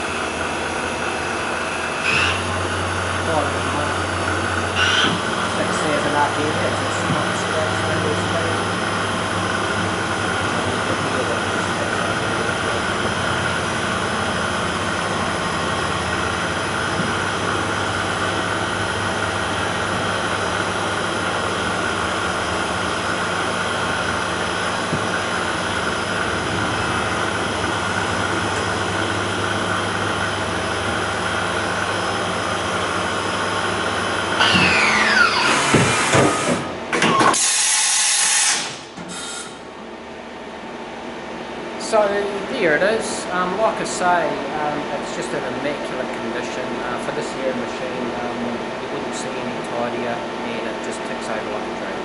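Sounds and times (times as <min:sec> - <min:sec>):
machine spindle whine: 0:00.0 - 0:39.7.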